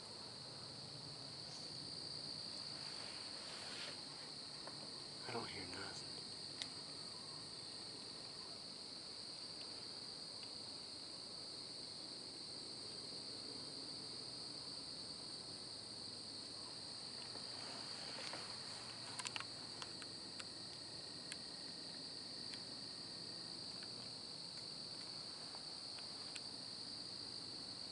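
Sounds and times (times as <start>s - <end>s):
night insects chorus: 0.0s - 27.9s
faint clicks: 6.6s - 6.8s, 19.1s - 22.7s.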